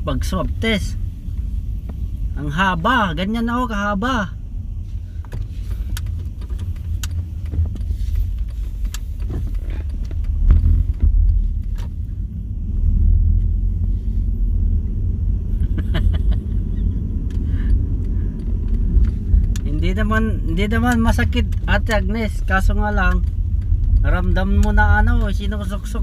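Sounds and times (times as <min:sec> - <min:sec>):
car cabin road rumble: 0:00.0 - 0:26.0
light clicks and rattles: 0:05.1 - 0:12.3, 0:15.6 - 0:26.0.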